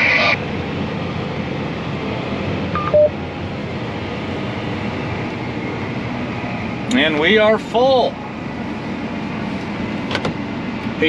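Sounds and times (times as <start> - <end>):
tractor engine hum: 0.0 - 11.0
two-tone alert beep: 2.8 - 3.2.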